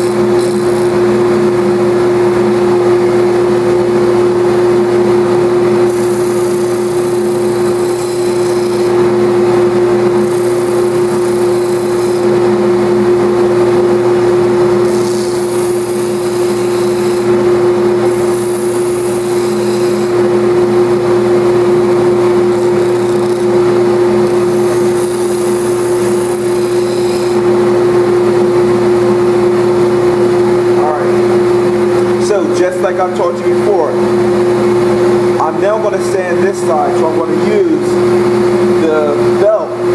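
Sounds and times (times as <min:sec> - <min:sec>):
sander humming: 0:00.0 - 0:39.9
wood sanding hiss: 0:24.4 - 0:27.4.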